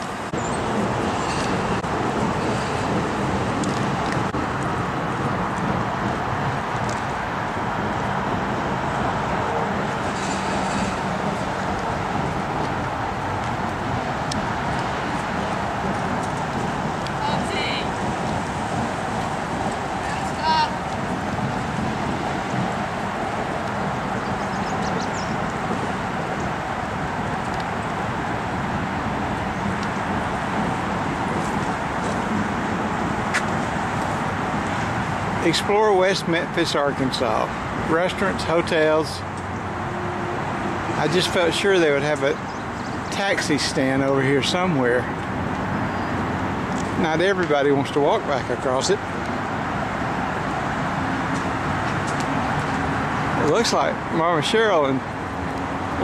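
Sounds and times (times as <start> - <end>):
highway traffic rush: 0.0 - 56.0.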